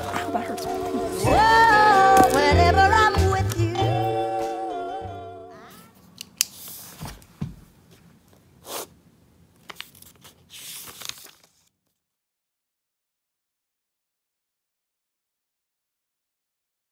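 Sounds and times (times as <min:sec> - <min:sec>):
paper rustling: 0:06.0 - 0:07.3, 0:09.6 - 0:12.0.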